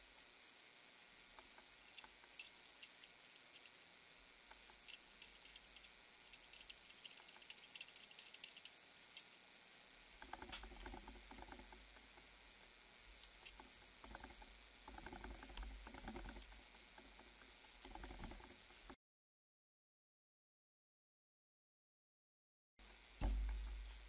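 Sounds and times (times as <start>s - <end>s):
faint clicks: 1.0s - 3.8s, 4.4s - 9.4s, 10.0s - 19.0s.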